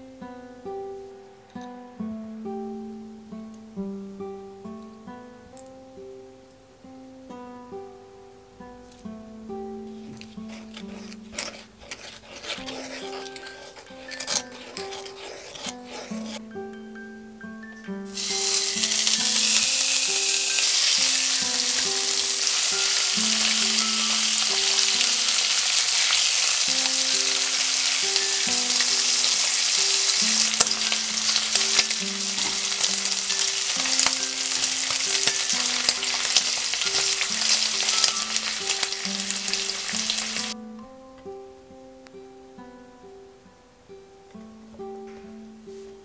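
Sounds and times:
meat sizzling in a frying pan: 18.1s - 40.6s.

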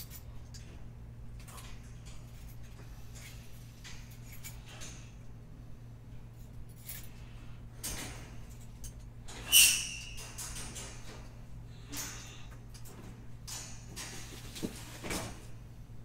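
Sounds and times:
low electrical hum: 0.0s - 16.0s
short loud squeak: 9.4s - 10.2s.

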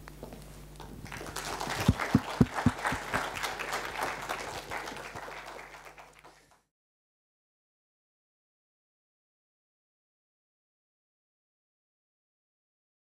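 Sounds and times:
audience applauding: 1.0s - 6.6s.

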